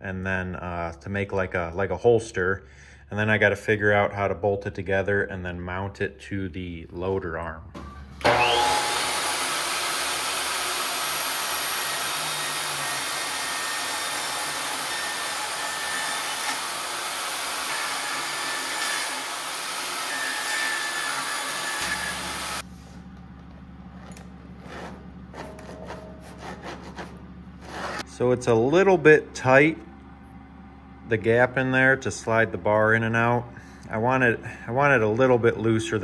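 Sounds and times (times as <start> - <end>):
table saw cutting plastic: 8.2 - 22.6, 24.6 - 28.1.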